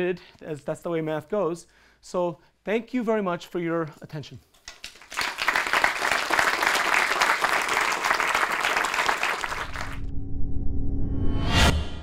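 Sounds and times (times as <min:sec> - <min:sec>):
audience applauding: 0:04.7 - 0:10.1.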